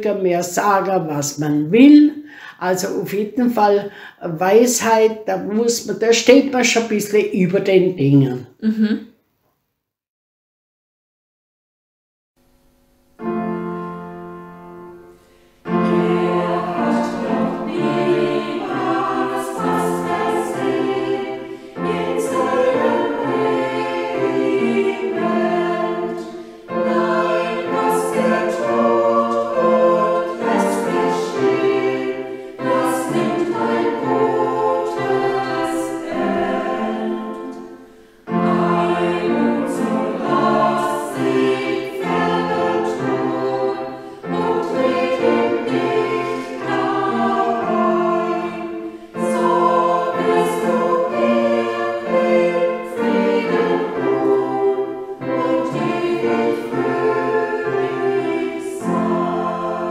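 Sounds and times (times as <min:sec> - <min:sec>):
single chord: 0:12.4 - 0:19.8
choir singing: 0:13.2 - 0:59.9.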